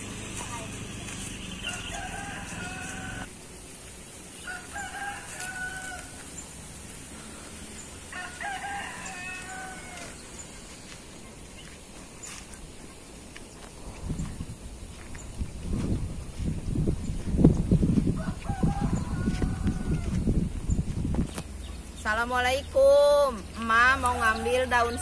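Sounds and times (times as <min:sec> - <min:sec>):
rooster crowing: 0:01.5 - 0:03.3, 0:04.4 - 0:06.4, 0:08.0 - 0:10.2, 0:18.1 - 0:20.3, 0:24.0 - 0:25.0.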